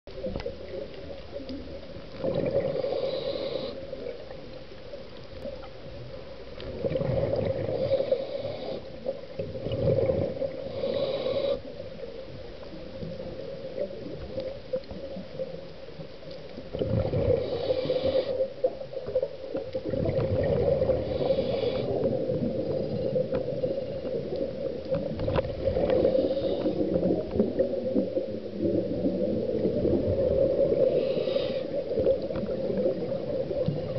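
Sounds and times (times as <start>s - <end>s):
steady underwater hum: 0.1s - 33.9s
gurgling exhaled bubbles: 0.2s - 4.4s, 6.6s - 11.6s, 16.6s - 33.9s
regulator inhale hiss: 2.7s - 3.9s, 7.6s - 9.1s, 10.6s - 11.7s, 17.2s - 18.5s, 20.8s - 22.1s, 25.9s - 27.2s, 30.7s - 32.1s.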